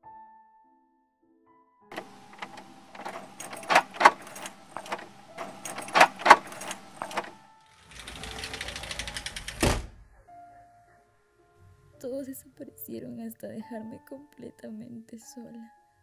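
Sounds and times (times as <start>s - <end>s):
metal doorknob rattling: 1.9s - 9.9s.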